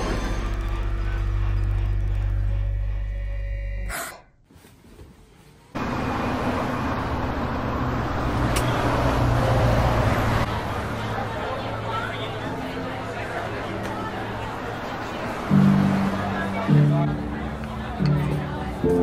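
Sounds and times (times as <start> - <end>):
city street traffic: 5.6 - 19.0.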